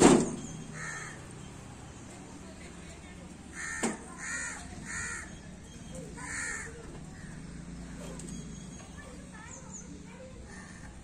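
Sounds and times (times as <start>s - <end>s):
crows cawing: 0.7s - 1.3s, 3.5s - 5.4s, 6.2s - 7.5s, 10.5s - 11.0s.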